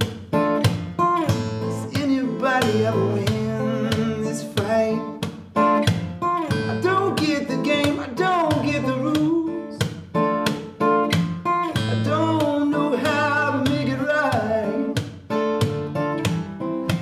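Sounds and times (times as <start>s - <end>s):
acoustic guitar strumming: 0.0s - 17.0s
man singing: 1.2s - 5.3s, 6.4s - 9.9s, 11.7s - 15.0s.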